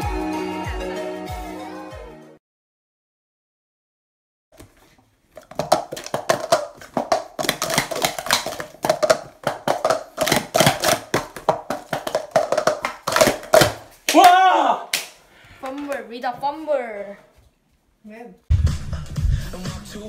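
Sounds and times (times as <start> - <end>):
plastic cups clattering: 4.6 - 14.0.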